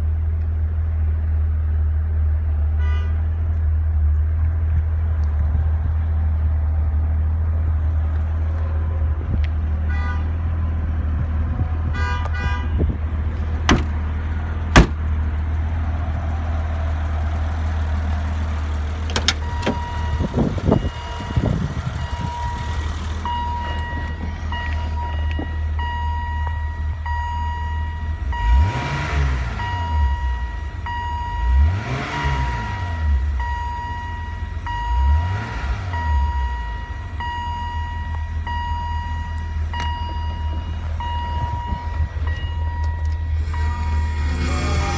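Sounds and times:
car engine idling: 0.0 - 44.9
high electronic warning tone: 19.4 - 28.6, 32.8 - 44.9
engine revving: 28.2 - 33.8, 34.6 - 36.9, 43.2 - 44.9.

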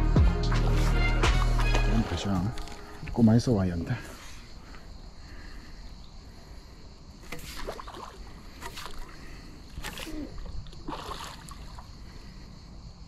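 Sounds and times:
fish splashing in water: 7.2 - 12.0.

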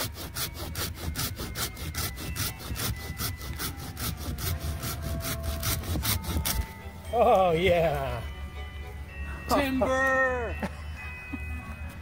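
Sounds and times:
hand saw cutting wood: 0.0 - 6.7.

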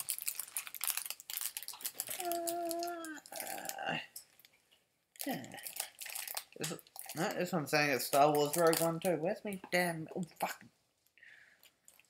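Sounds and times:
plastic packaging crinkling: 0.0 - 4.6, 5.2 - 9.6.

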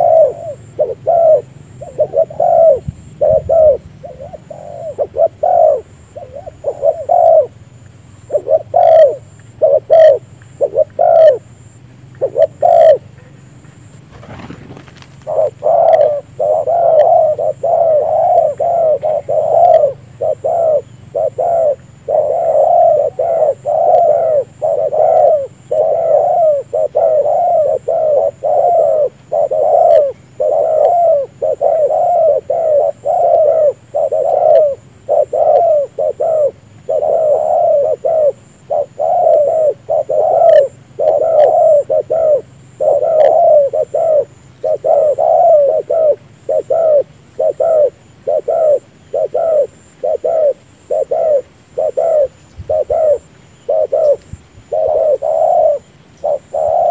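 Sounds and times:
doves cooing: 0.0 - 56.9.

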